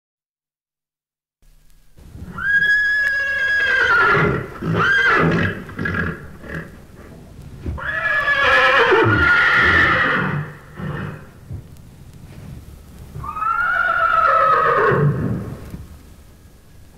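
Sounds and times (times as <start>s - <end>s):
horse whinnying: 2.3s - 6.7s, 7.8s - 11.3s, 13.2s - 15.6s.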